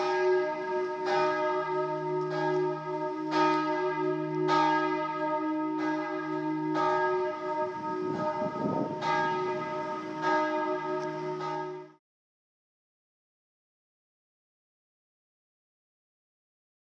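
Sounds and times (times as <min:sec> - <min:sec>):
church bells ringing: 0:00.0 - 0:12.0.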